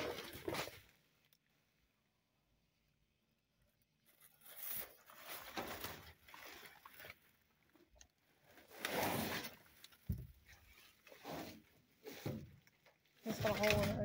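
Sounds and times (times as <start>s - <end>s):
plastic bags rustling: 4.0s - 14.0s
cardboard box scraping: 8.6s - 9.8s.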